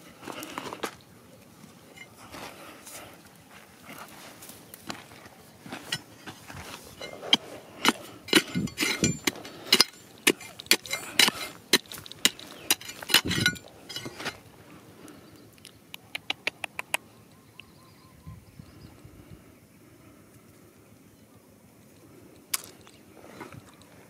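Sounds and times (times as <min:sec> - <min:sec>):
soil and pebbles scattering: 0:00.0 - 0:15.7, 0:22.4 - 0:24.0
spade digging stony dirt: 0:05.7 - 0:14.5.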